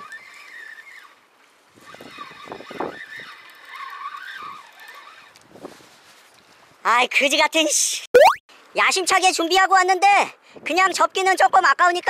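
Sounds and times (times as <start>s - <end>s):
fishing reel winding squeak: 0.0s - 1.2s, 1.9s - 5.4s.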